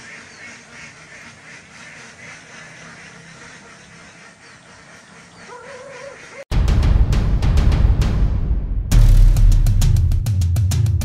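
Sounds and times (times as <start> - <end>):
ducks quacking: 0.0 - 6.5.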